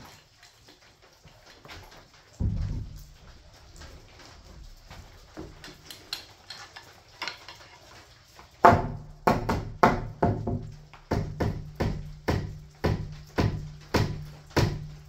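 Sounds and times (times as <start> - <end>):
hammer striking nail into wood: 8.7 - 14.9.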